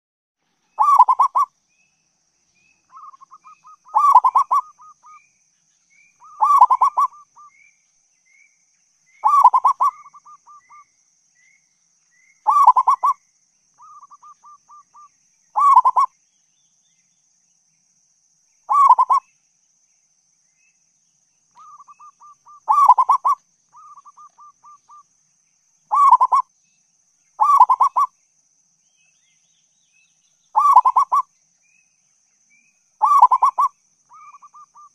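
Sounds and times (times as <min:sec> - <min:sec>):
dove cooing: 0:00.8 - 0:01.5, 0:03.0 - 0:05.2, 0:06.2 - 0:07.5, 0:09.2 - 0:10.8, 0:12.5 - 0:13.2, 0:15.6 - 0:16.1, 0:18.7 - 0:19.2, 0:21.6 - 0:25.0, 0:25.9 - 0:26.4, 0:27.4 - 0:28.1, 0:30.6 - 0:31.2, 0:33.0 - 0:34.9.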